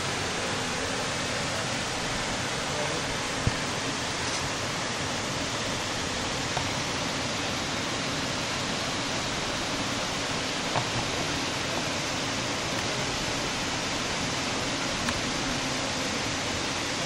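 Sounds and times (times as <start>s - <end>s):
waterfall rushing: 0.0s - 17.0s.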